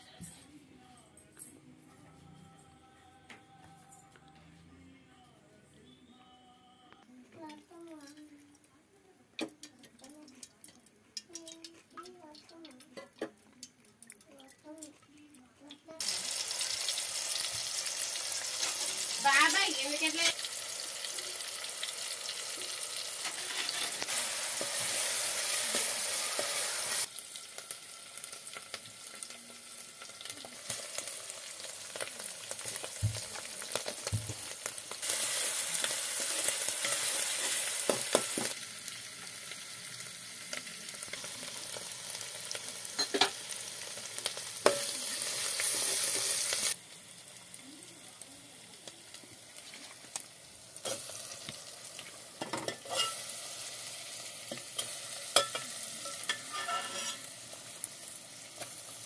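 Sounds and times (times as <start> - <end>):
onion sizzling in hot oil: 15.8 - 59.0.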